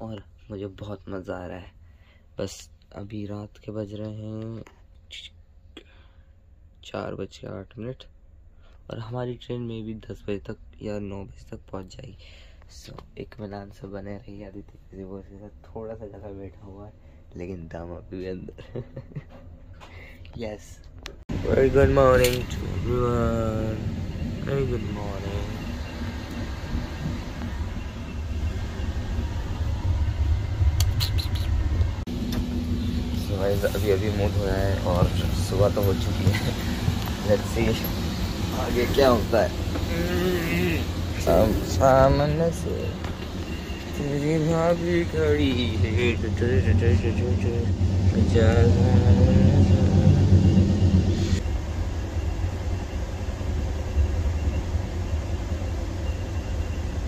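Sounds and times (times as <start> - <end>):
train rumbling: 21.3 - 57.0.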